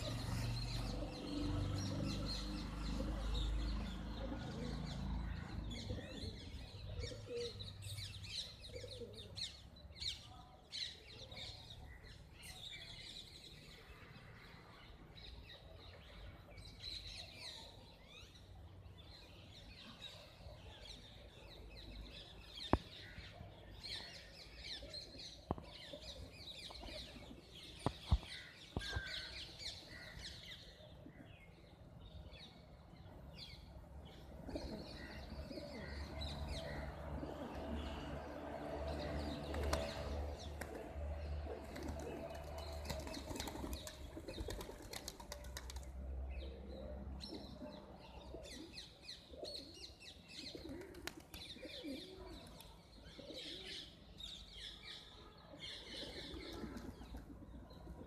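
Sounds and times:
birds chirping: 0.0s - 58.0s
pigeon wings fluttering: 41.6s - 45.9s, 50.8s - 51.4s.

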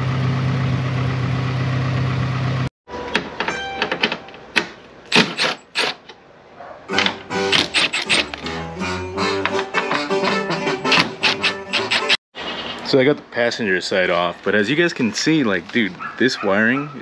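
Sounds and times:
plucked guitar music: 6.9s - 11.8s.

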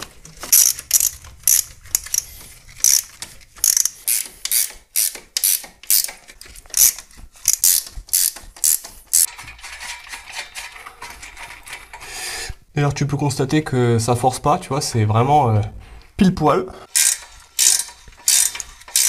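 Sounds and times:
ratchet wrench clicking: 0.5s - 9.3s, 16.9s - 19.0s.

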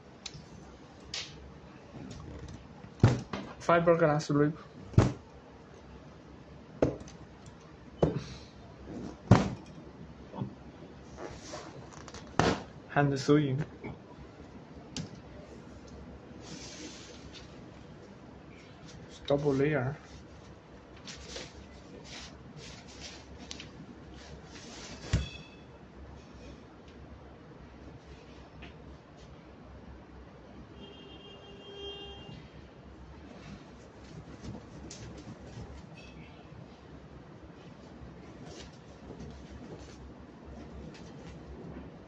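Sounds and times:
umbrella fabric rustling: 11.0s - 12.6s, 20.0s - 25.2s, 33.3s - 36.0s, 37.7s - 41.8s.

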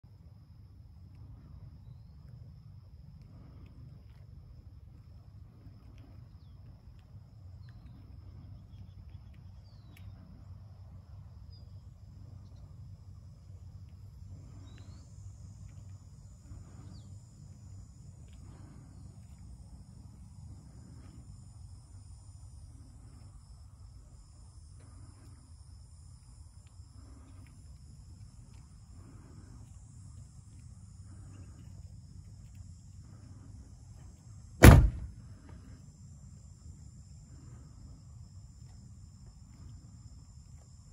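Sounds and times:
insects droning: 0.0s - 40.9s
low steady rumble: 0.0s - 40.9s
faint bird chirps: 7.6s - 10.4s, 14.4s - 15.1s.

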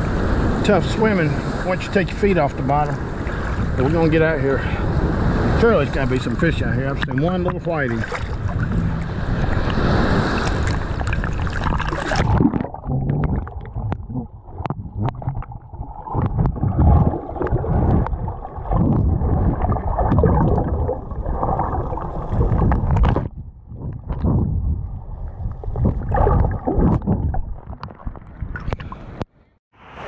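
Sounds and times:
surf washing and splashing: 0.0s - 23.3s
underwater rumble and gurgling: 2.2s - 29.2s
underwater clicks and knocks: 6.9s - 9.8s, 10.4s - 20.7s, 22.4s - 24.5s, 25.8s - 29.3s.

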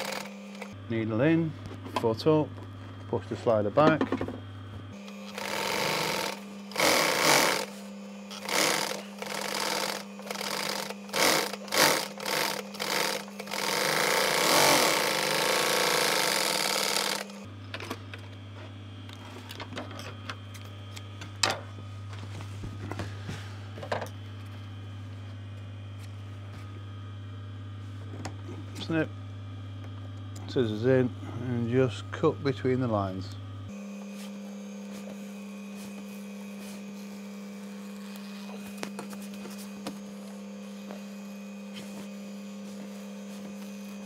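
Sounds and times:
sewing machine stitching: 0.0s - 0.7s, 5.2s - 7.7s, 8.3s - 17.4s
steady low hum: 0.0s - 44.0s.

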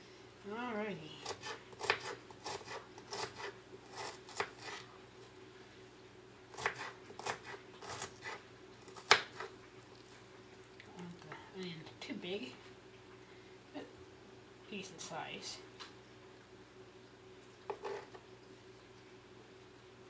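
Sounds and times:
knife cutting onion on board: 1.2s - 4.9s, 6.5s - 9.5s, 17.7s - 18.2s.

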